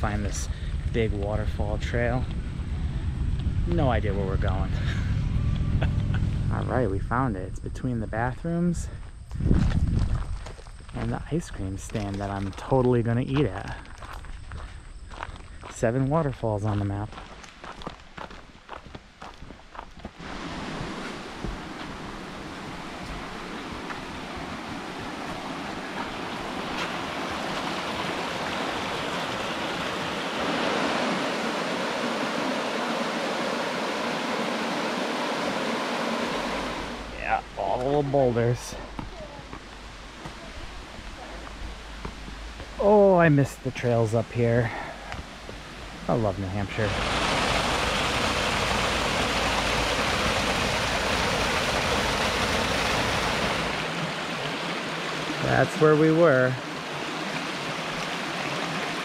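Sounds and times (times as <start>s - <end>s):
waterfall rushing over rocks: 20.2s - 44.2s, 45.0s - 59.0s.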